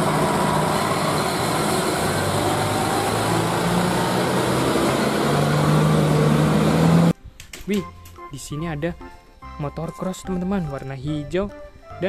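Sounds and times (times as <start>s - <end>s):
dump truck diesel engine drone: 0.0s - 7.2s.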